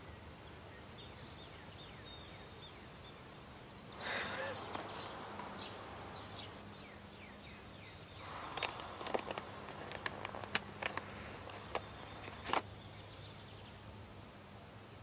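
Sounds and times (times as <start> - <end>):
steady low hum: 2.5 - 15.0
sharp clicks and knocks: 8.5 - 12.6.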